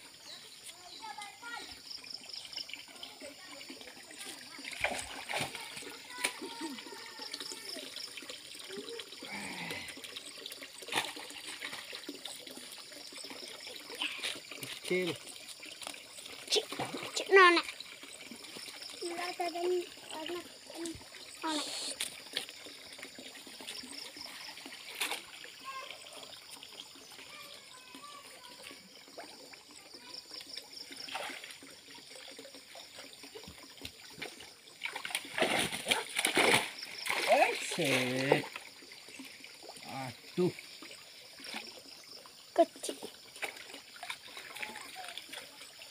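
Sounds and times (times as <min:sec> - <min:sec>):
stream water splashing and trickling: 0:00.0 - 0:45.9
net sweeping through water: 0:34.8 - 0:38.0.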